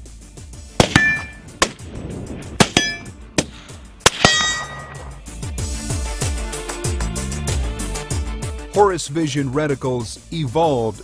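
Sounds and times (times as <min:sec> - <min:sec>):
bullets striking steel targets: 0:00.8 - 0:01.8, 0:02.6 - 0:05.2.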